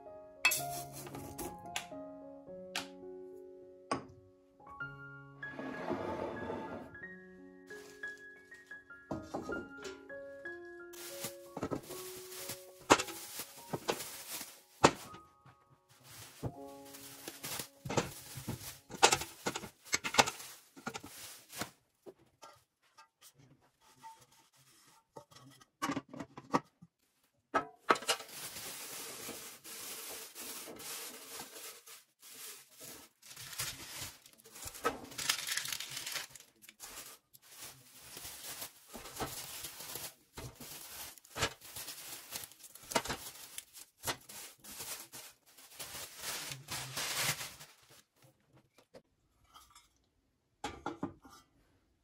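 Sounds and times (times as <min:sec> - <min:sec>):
plastic bag crinkling: 0:07.7 - 0:08.6, 0:10.9 - 0:15.2, 0:15.9 - 0:21.8, 0:28.0 - 0:48.2.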